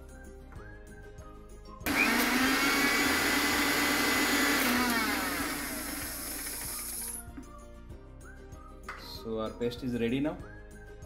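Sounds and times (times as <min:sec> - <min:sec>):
mixer grinder motor running: 0:01.9 - 0:07.2.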